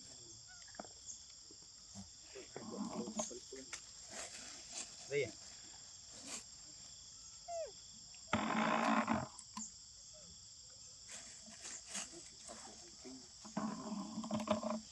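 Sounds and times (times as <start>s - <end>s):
harsh rasping monkey call: 7.4s - 7.8s.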